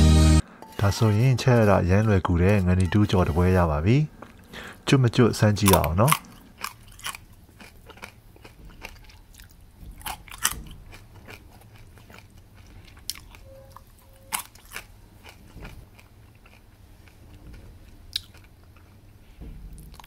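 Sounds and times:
crunchy chewing: 5.6 - 19.1, 19.7 - 20.0.

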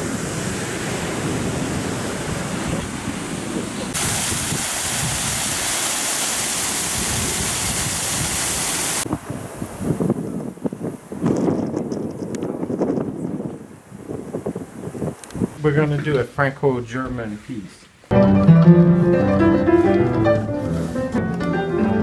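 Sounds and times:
wind buffeting the microphone: 0.0 - 5.8, 6.6 - 16.3
waterfall splashing: 0.0 - 9.3
ocean surf breaking: 0.0 - 10.6.

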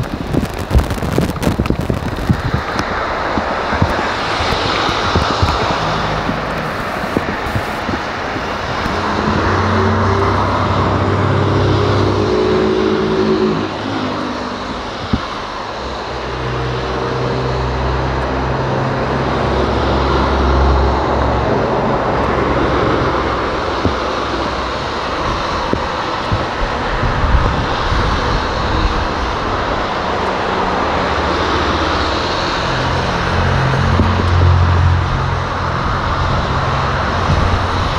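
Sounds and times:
jet engine drone: 0.0 - 37.9
rain: 0.0 - 37.9
storm wind: 0.0 - 37.9.

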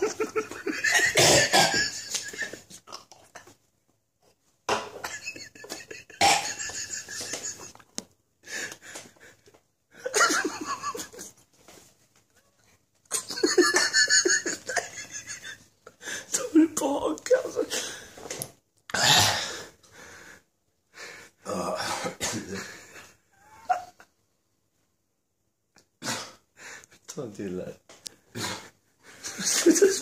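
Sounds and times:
person coughing and laughing: 0.0 - 3.5, 4.7 - 7.7, 22.0 - 22.8.

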